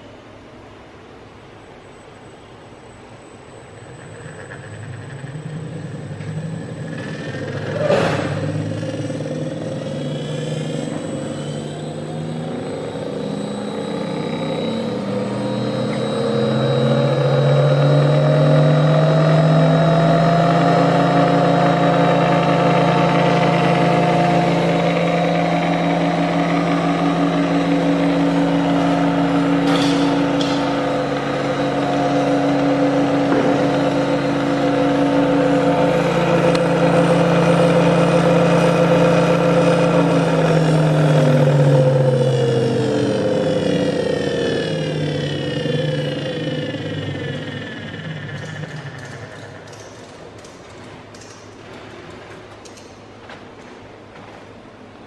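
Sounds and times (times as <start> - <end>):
electric mixer motor humming: 8.4 - 49.3.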